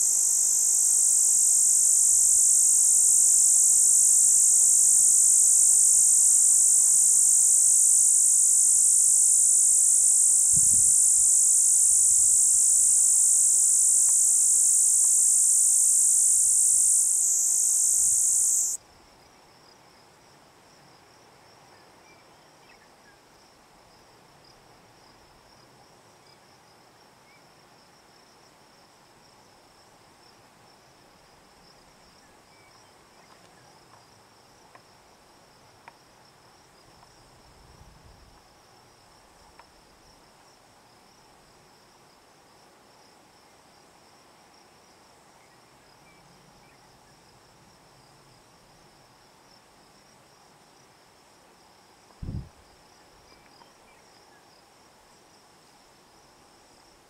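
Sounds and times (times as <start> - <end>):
cicada buzzing: 0.0 - 18.8.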